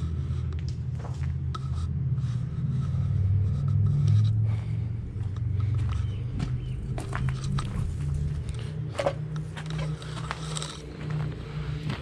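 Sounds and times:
low rumble: 0:00.0 - 0:12.0
footsteps on twigs and gravel: 0:05.1 - 0:12.0.

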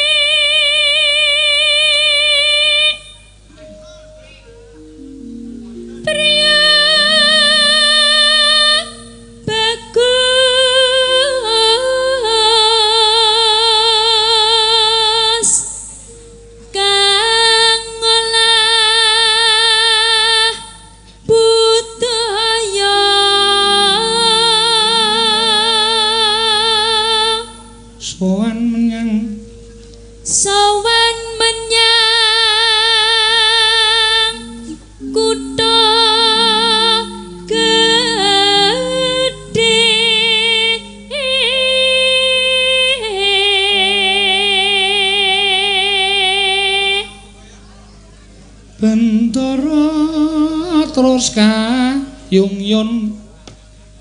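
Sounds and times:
woman singing through a microphone: 0:00.0 - 0:03.4, 0:05.9 - 0:16.1, 0:16.7 - 0:29.5, 0:30.2 - 0:47.4, 0:48.8 - 0:53.3
low accompanying notes: 0:03.5 - 0:20.5, 0:21.3 - 0:47.4.

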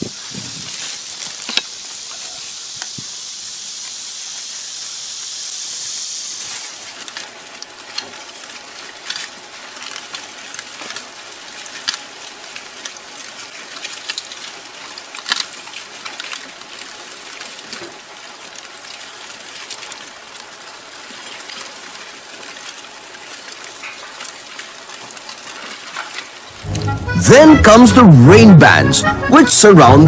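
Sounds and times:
tortoises crawling on dry leaves: 0:00.0 - 0:27.1
shells and claws clicking: 0:05.6 - 0:26.5.

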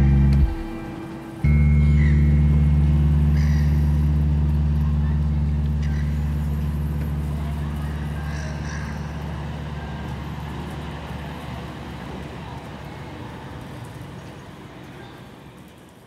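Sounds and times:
low rumbling drone: 0:00.0 - 0:11.8.

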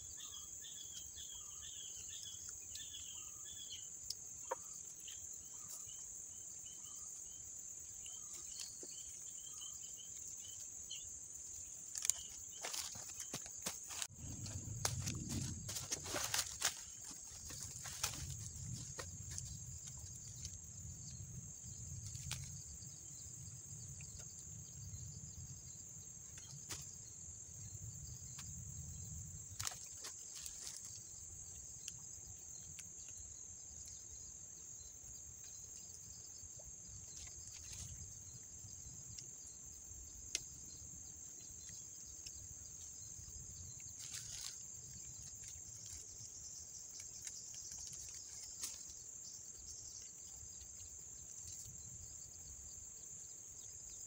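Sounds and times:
insects chirring: 0:00.0 - 0:54.0
small clicks and rustles: 0:46.9 - 0:49.0.

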